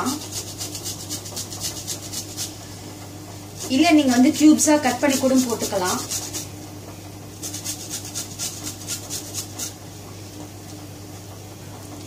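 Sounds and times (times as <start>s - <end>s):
carrot grating on hand grater: 0.0s - 2.6s, 3.6s - 6.5s, 7.4s - 9.8s.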